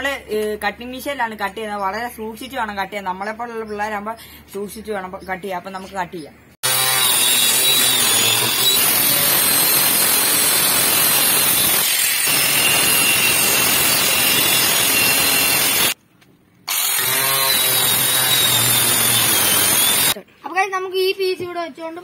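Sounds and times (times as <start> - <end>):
angle grinder cutting plastic: 6.6 - 16.0, 16.7 - 20.2.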